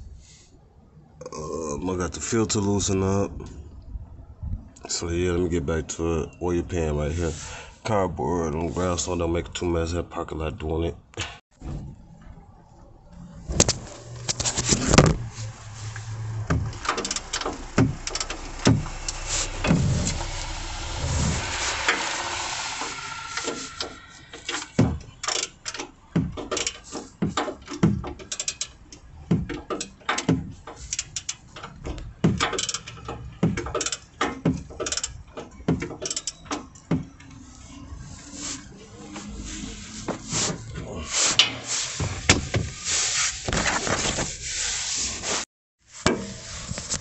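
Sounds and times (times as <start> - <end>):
scraping and rustling: 13.2 - 28.8, 37.4 - 47.0
ratchet wrench clicking: 16.8 - 20.5, 28.2 - 28.8, 29.7 - 31.5, 32.4 - 33.0, 33.7 - 34.1, 34.8 - 35.2, 36.0 - 36.4.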